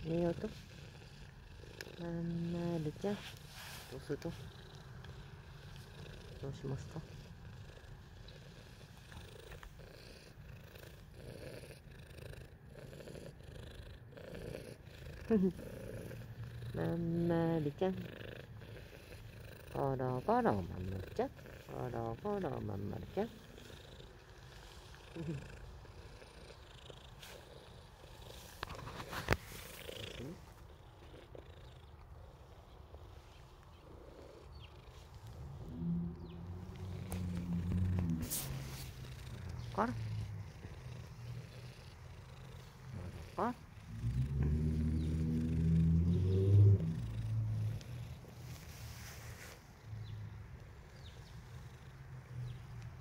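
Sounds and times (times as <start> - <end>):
cat purring: 0.0 - 53.0
fur rubbing against phone: 3.0 - 4.7, 28.3 - 30.5, 38.0 - 39.7, 48.3 - 49.7.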